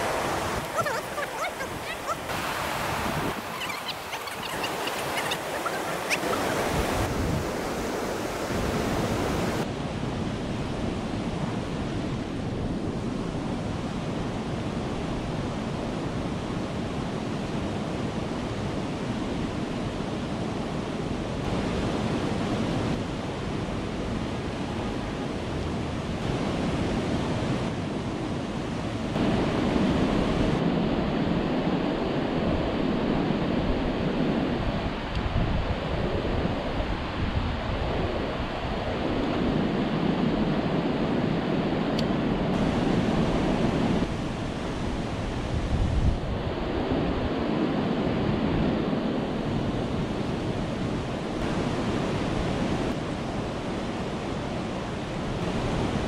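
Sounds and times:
water rushing over weir: 0.0s - 9.7s
wind noise on microphone: 0.0s - 56.0s.

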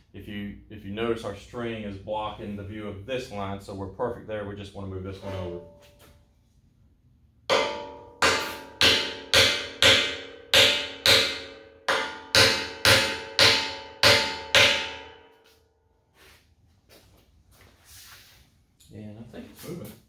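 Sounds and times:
hammer striking steel: 7.5s - 15.3s.

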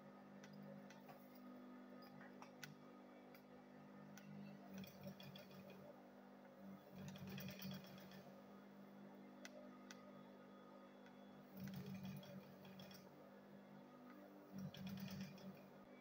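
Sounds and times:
sewing machine low hum: 0.0s - 16.0s
sewing machine rapid ticking: 4.7s - 5.7s, 7.0s - 8.3s, 11.6s - 13.1s, 14.6s - 15.6s.

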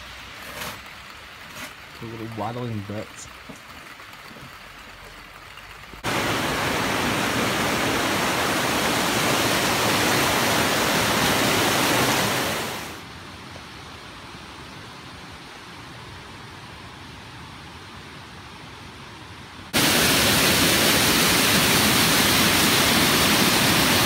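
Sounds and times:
river rushing: 6.0s - 13.6s, 19.7s - 24.0s.

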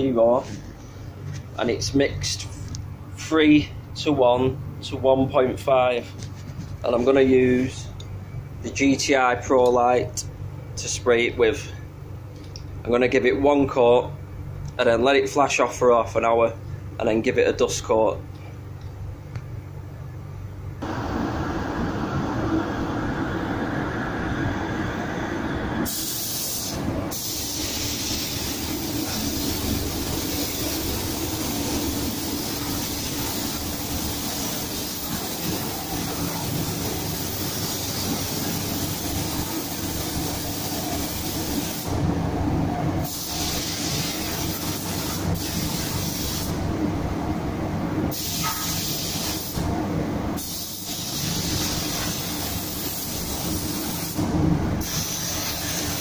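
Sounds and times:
spray booth low rumble: 0.0s - 56.0s
spray gun hissing: 25.9s - 42.0s, 43.0s - 46.6s, 48.1s - 49.6s, 50.4s - 56.0s.

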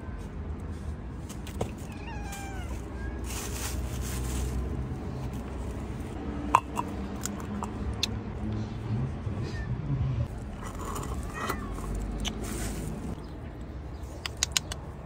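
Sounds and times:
plastic bag rustling: 1.7s - 6.2s
cat meowing: 1.8s - 3.4s.

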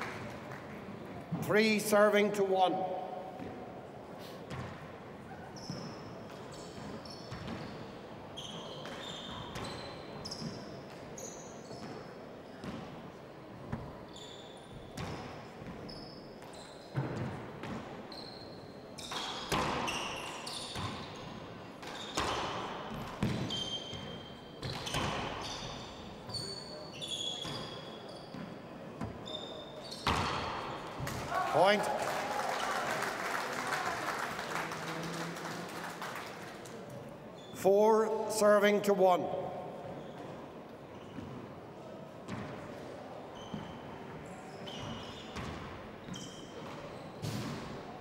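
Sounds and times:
sneakers squeaking on court floor: 3.3s - 13.0s, 13.6s - 31.8s, 37.3s - 37.6s, 39.6s - 48.0s.

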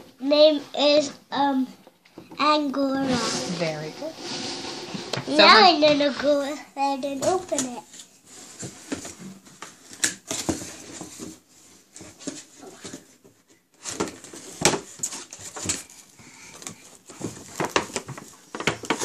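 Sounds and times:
cardboard and plastic packaging crinkling: 7.1s - 19.0s.

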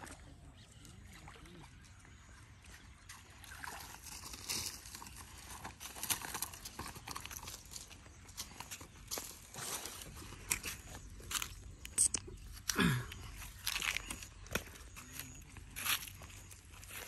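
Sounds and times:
water sloshing and splashing: 0.0s - 8.7s.

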